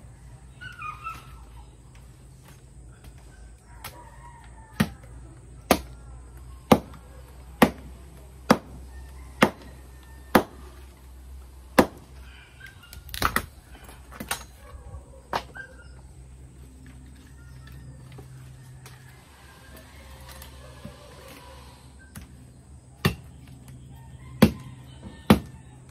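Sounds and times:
machete chopping wood: 0:04.8 - 0:05.0, 0:05.6 - 0:06.0, 0:06.7 - 0:07.0, 0:07.6 - 0:07.9, 0:08.5 - 0:08.8, 0:09.4 - 0:09.7, 0:10.3 - 0:10.6, 0:11.7 - 0:12.1, 0:13.1 - 0:13.5, 0:23.0 - 0:23.6, 0:24.4 - 0:24.6, 0:25.3 - 0:25.6.

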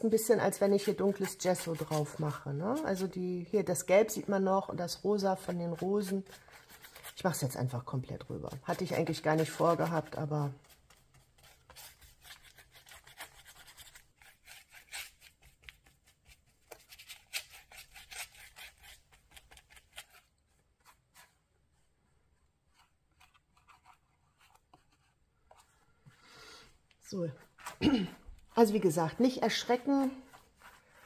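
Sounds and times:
paintbrush scrubbing on paper: 0:00.1 - 0:03.4, 0:04.9 - 0:22.0, 0:27.4 - 0:31.0.

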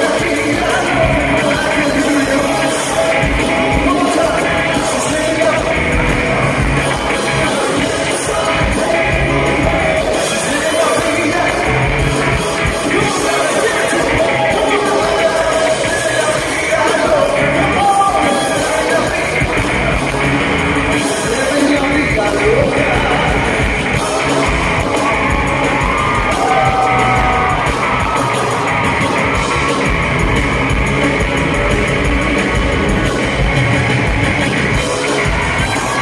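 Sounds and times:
man singing: 0:00.0 - 0:12.1, 0:12.7 - 0:20.2, 0:20.9 - 0:25.6
crowd noise: 0:00.0 - 0:36.0
live pop-rock band: 0:00.0 - 0:36.0.

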